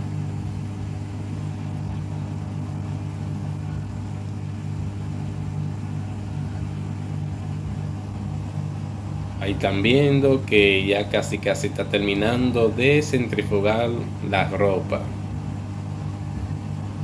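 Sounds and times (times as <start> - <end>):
washing machine humming: 0.0 - 17.0.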